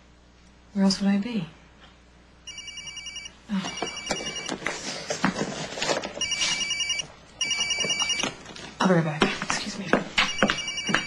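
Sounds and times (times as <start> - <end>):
phone ringing electronic trill: 2.5 - 4.6, 6.2 - 8.4, 10.3 - 11.0.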